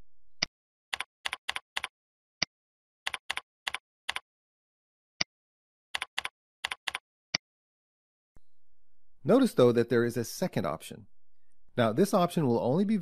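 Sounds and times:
keyboard typing: 0:00.9 - 0:01.9, 0:03.1 - 0:04.2, 0:06.0 - 0:07.0.

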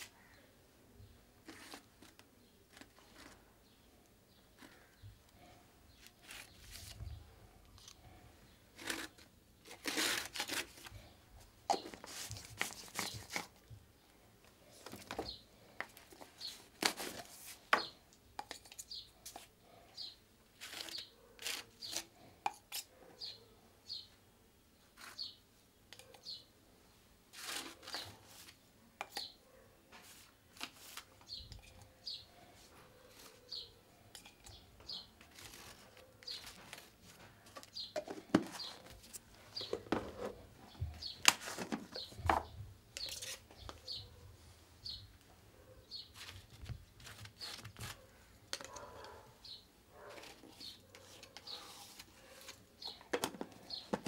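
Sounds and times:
small bird chirping: 0:18.7 - 0:19.2, 0:23.2 - 0:24.2, 0:24.9 - 0:25.4, 0:26.0 - 0:26.5, 0:31.2 - 0:36.8, 0:37.6 - 0:39.9, 0:41.9 - 0:44.2, 0:44.8 - 0:45.2, 0:45.8 - 0:46.4
paintbrush scraping on rough paper: 0:27.3 - 0:28.6, 0:50.0 - 0:52.6.

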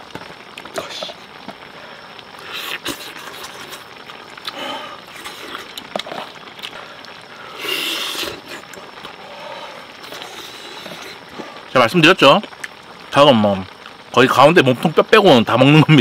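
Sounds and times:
background hiss: 0:00.0 - 0:16.0
man chewing chicken: 0:02.4 - 0:09.2, 0:10.0 - 0:11.6.

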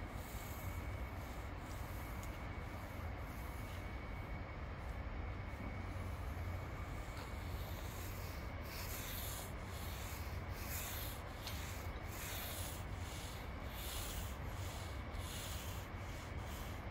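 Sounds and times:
steady low hum: 0:00.0 - 0:16.9
paint roller swishing on concrete: 0:07.4 - 0:16.9.

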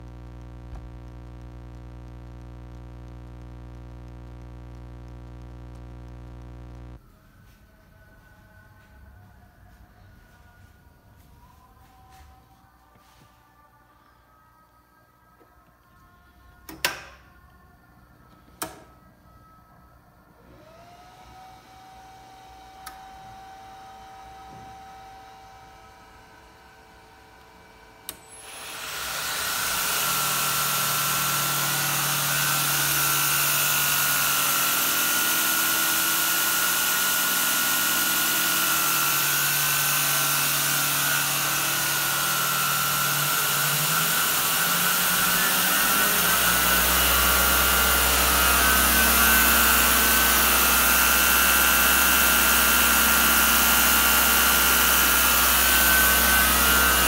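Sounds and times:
deeper hum: 0:00.0 - 0:07.0
belt grinder whirring: 0:28.0 - 0:57.0.

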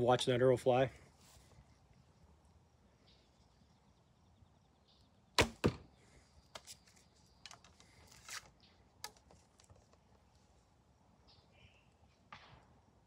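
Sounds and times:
arrow striking target: 0:05.4 - 0:05.9
faint clicks and rustles: 0:06.6 - 0:10.6.

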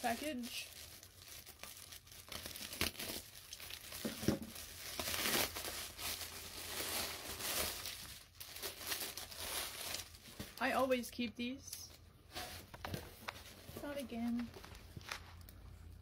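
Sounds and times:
plastic ripping: 0:00.0 - 0:10.6
plastic bag rustling and crinkling: 0:00.0 - 0:11.0, 0:12.3 - 0:15.6.

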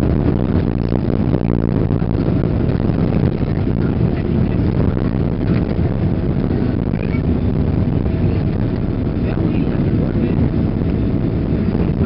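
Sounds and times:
deep rumble of jet engines: 0:00.0 - 0:12.0
wheels rumbling on runway: 0:00.0 - 0:12.0.

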